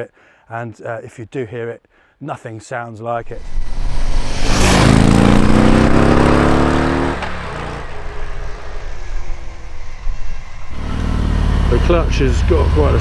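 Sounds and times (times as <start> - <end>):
motorcycle engine accelerating: 3.4 - 13.0.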